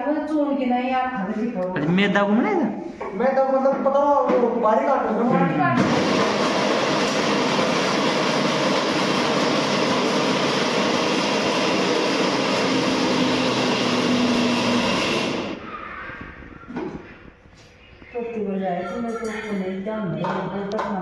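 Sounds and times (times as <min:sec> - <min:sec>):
electric mixer grinder running: 0:05.8 - 0:15.6.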